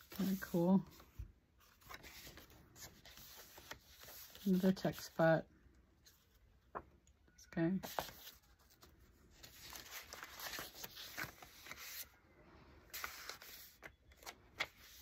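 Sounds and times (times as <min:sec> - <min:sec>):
paper pages rustling: 0:00.0 - 0:05.2, 0:07.8 - 0:12.2, 0:12.9 - 0:15.0.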